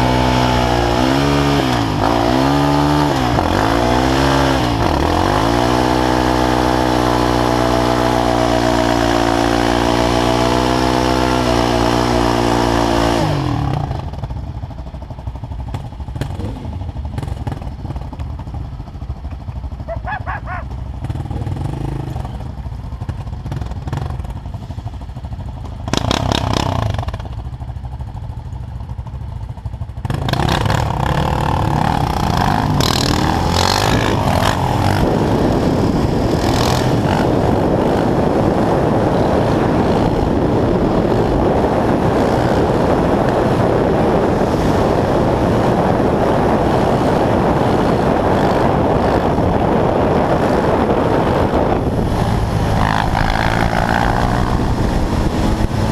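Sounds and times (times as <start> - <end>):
quad bike engines revving: 0.0 - 14.7, 15.5 - 27.7, 29.6 - 55.9
wind on microphone: 30.3 - 55.9.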